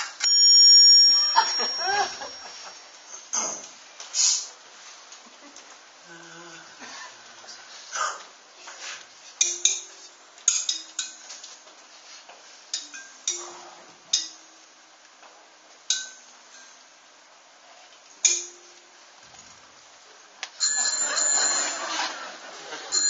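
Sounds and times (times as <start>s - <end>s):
sharp metallic clinks: 0.2s - 3.5s.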